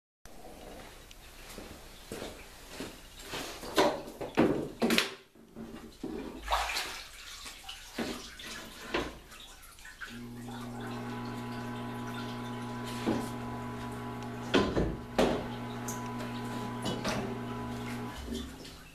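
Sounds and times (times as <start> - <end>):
water sloshing: 5.8 - 18.9
steady electric hum: 10.1 - 18.9.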